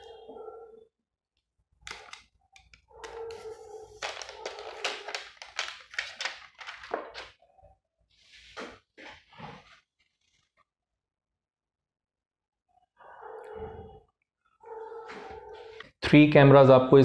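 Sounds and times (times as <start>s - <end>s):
plastic packaging crinkling: 3.3s - 7.4s.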